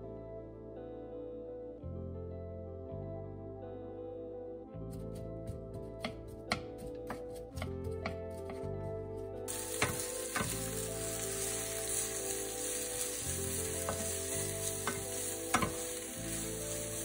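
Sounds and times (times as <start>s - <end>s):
onions sizzling in oil: 9.5s - 17.0s
wooden spatula knocking on pan: 9.7s - 10.6s, 14.8s - 15.9s.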